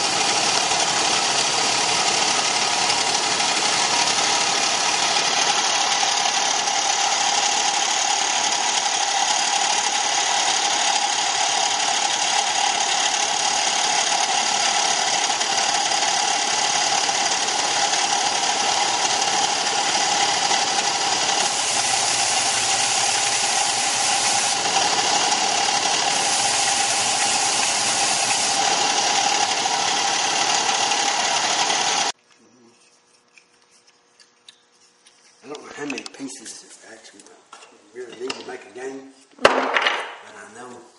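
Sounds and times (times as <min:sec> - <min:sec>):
belt sander whirring hiss: 0:00.0 - 0:32.2.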